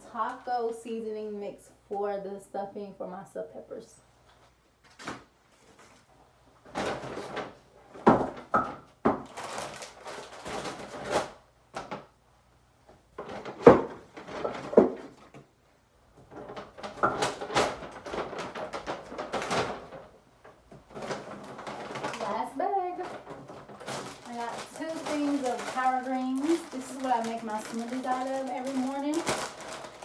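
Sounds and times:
items knocking on countertop: 8.0s - 9.3s, 13.3s - 15.2s
paper bags rustling: 9.2s - 12.0s, 16.2s - 30.0s.

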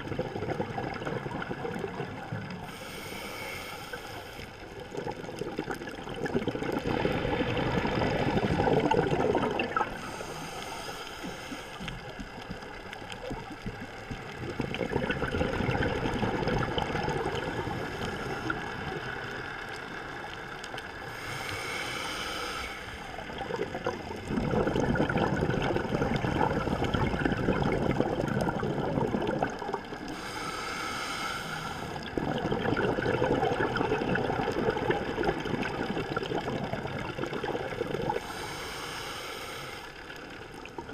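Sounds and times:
bubbling exhaled air: 0.0s - 19.8s, 20.8s - 40.9s
regulator inhale hiss: 2.6s - 4.7s, 9.9s - 12.2s, 17.5s - 18.8s, 21.0s - 23.4s, 30.0s - 32.1s, 38.1s - 40.4s.

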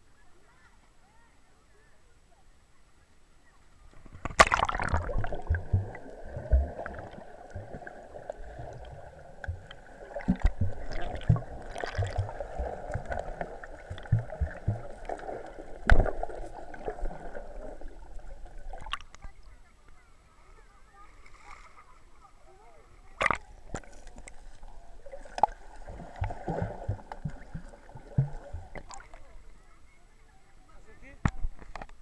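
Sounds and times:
underwater water and bubbles: 3.9s - 20.0s, 23.0s - 29.8s
camera splashing into water: 4.0s - 7.2s
low underwater thumps: 4.0s - 19.4s, 25.1s - 29.3s.

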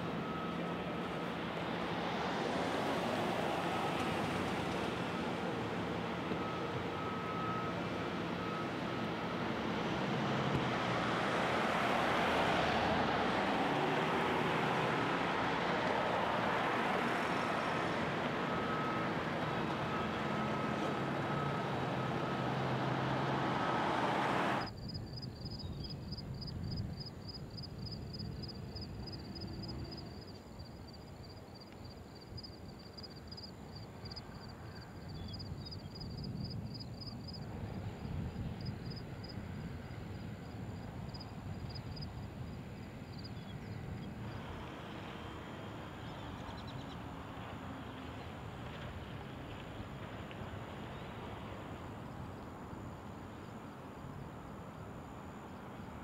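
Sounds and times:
faint high whine: 0.0s - 12.9s, 13.5s - 23.7s, 24.5s - 48.2s.

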